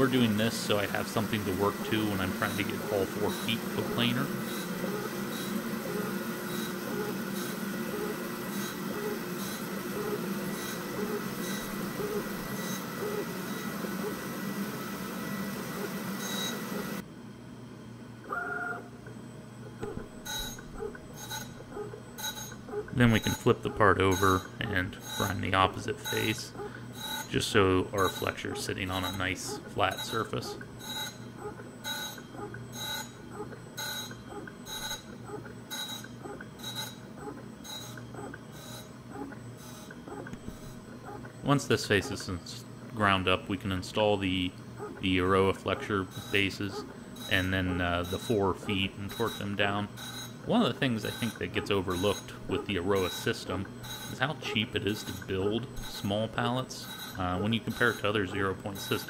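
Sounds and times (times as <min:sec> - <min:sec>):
grinder wheel grinding metal: 0:00.0 - 0:17.0
grinder motor hum: 0:00.0 - 0:17.1, 0:18.2 - 0:59.0.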